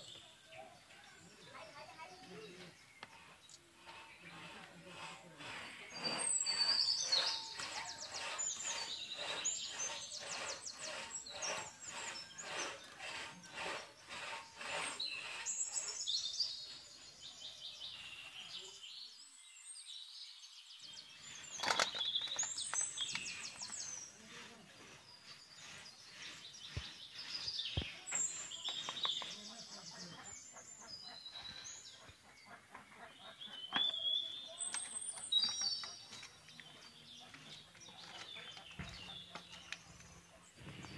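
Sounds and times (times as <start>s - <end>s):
birds chirping and trilling: 0.0s - 40.9s
scraping strokes: 3.0s - 16.5s, 21.2s - 30.3s.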